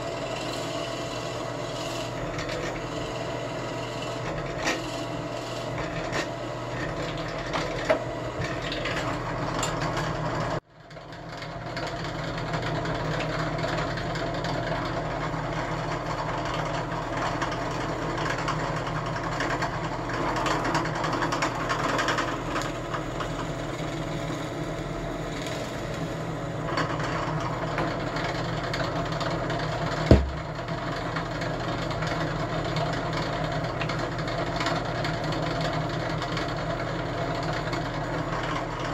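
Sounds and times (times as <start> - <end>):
sharp thump: 30.1 - 30.6.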